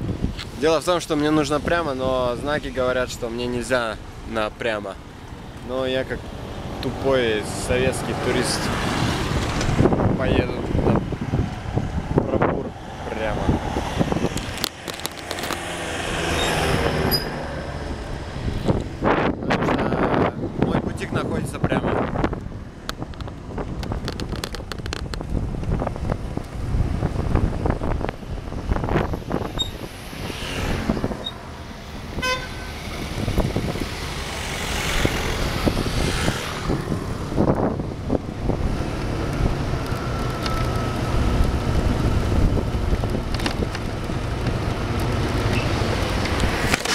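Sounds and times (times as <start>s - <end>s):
passing traffic: 0.0s - 46.9s
vehicle engine and road rumble: 0.0s - 46.9s.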